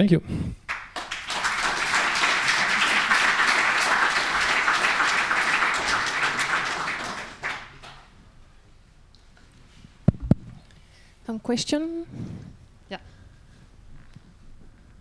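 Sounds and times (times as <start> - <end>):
audience applauding: 0.7 - 8.1.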